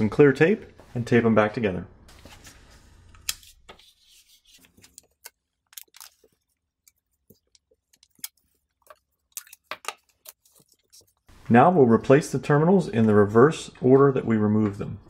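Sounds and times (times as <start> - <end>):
packing tape unrolling crackles: 3.2 - 11.3.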